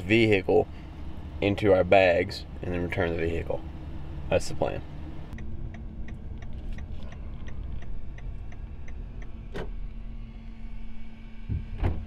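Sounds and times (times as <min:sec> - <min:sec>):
idling vehicle hum: 0:00.0 - 0:12.0
car indicator ticking: 0:05.3 - 0:09.7
thump: 0:11.5 - 0:12.0.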